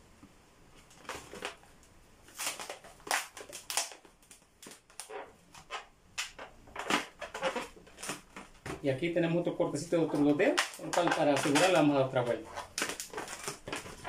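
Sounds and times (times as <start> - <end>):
balloon rubbing and squeaking: 4.8 - 8.6.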